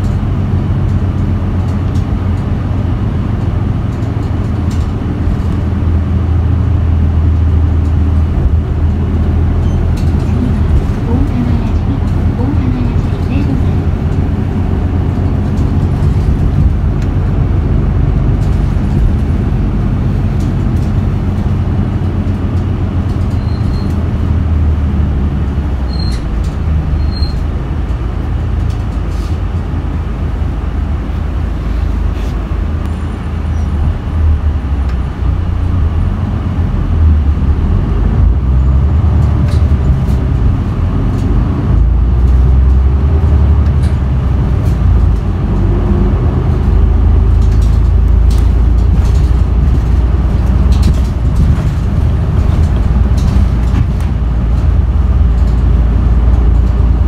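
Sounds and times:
bus diesel engine rumble: 0.0s - 57.0s.

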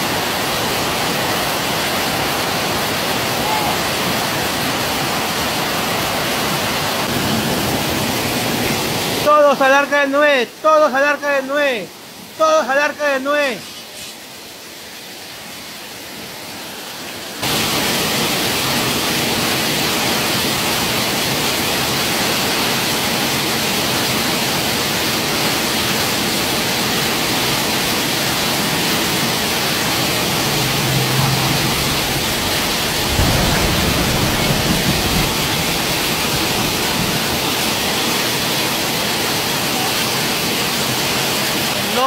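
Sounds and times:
heavy rain on a flooded street: 0.0s - 42.0s
low rumble: 29.3s - 37.5s.

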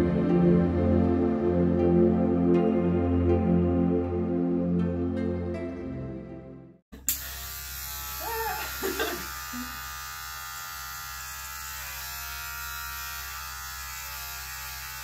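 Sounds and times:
electric hair clippers buzzing: 7.0s - 15.0s.

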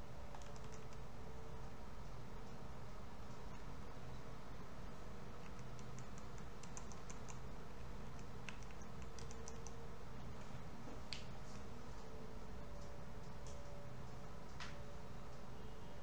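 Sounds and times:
low background hum: 0.0s - 16.0s
keyboard and mouse clicking: 0.3s - 1.1s, 5.4s - 7.4s, 8.0s - 9.8s.

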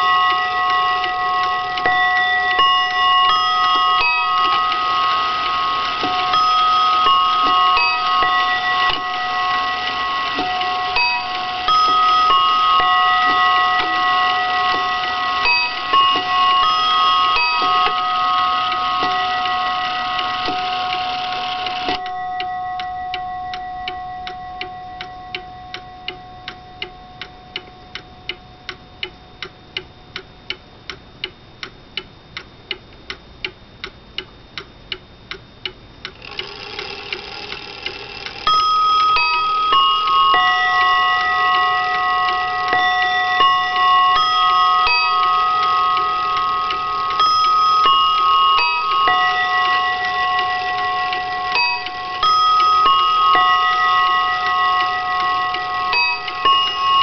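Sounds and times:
clock chime notes: 0.0s - 29.3s, 36.2s - 57.0s
clock ticking: 0.0s - 57.0s.

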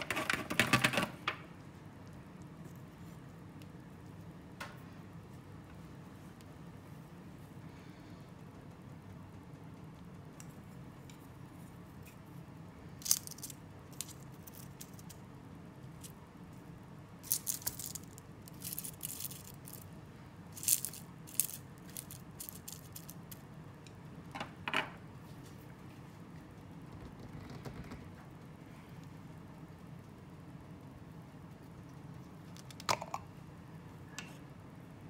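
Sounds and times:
low room hum: 0.0s - 35.0s
chopsticks clicking and scraping: 13.0s - 15.2s, 17.2s - 19.9s, 20.6s - 24.0s.

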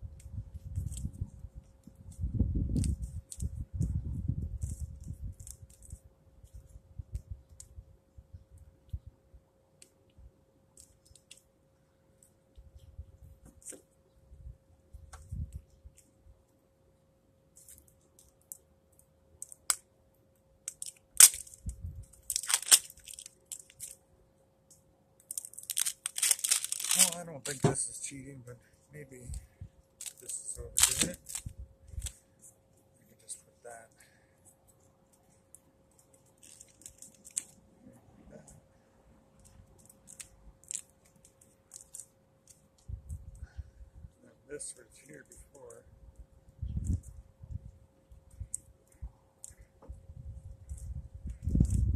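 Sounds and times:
duct tape sticky crackles: 0.2s - 7.7s, 17.5s - 19.8s, 20.6s - 24.0s, 25.2s - 28.2s, 30.0s - 32.6s, 35.1s - 37.6s, 39.4s - 43.2s
wrapping tearing and crinkling: 20.7s - 24.0s, 25.2s - 28.2s, 30.0s - 32.2s, 35.9s - 37.6s, 39.4s - 42.6s.

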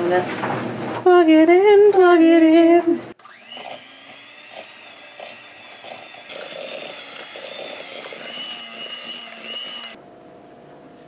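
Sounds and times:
electric hand mixer whine: 3.2s - 10.0s.

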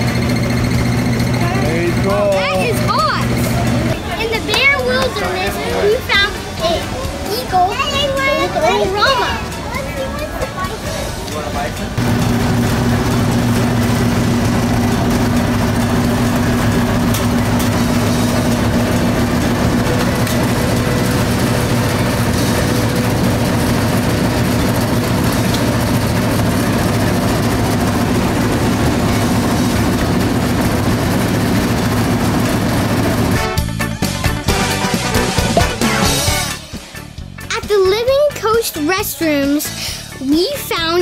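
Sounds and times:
vending machine mechanical hum: 0.0s - 7.4s, 11.8s - 33.7s.

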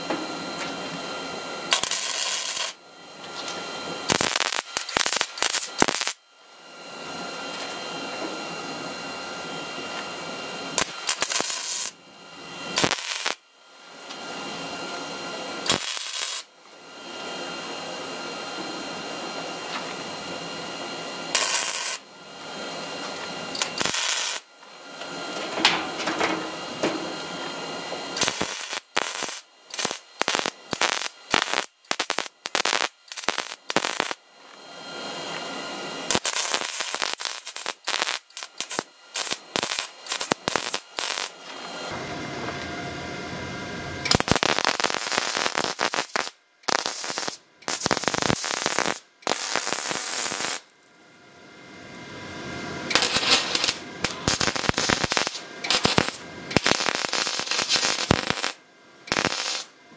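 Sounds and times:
welder arc crackling: 1.7s - 2.8s, 3.4s - 6.2s, 10.7s - 12.0s, 12.7s - 13.4s, 15.6s - 16.5s, 21.2s - 22.1s, 23.0s - 34.6s, 36.0s - 42.0s, 44.0s - 50.7s, 52.9s - 59.8s.

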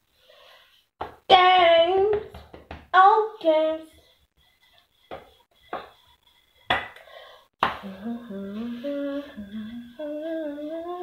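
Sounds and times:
woman humming: 7.8s - 11.0s.

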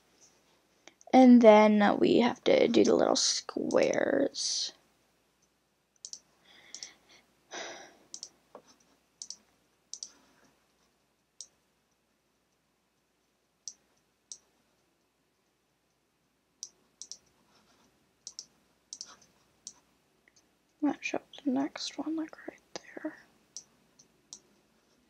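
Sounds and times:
computer mouse clicks: 5.4s - 6.9s, 8.1s - 10.2s, 11.4s - 11.6s, 13.6s - 14.5s, 16.6s - 17.4s, 18.2s - 20.5s, 23.5s - 24.6s.

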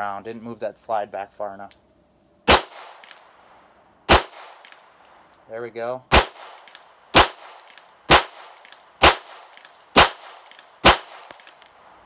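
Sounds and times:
pistol shots: 2.5s - 3.3s, 4.1s - 5.0s, 6.1s - 11.8s.

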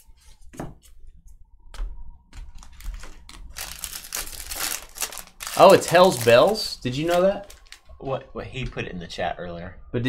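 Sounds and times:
wrapper crinkling: 2.6s - 7.9s.

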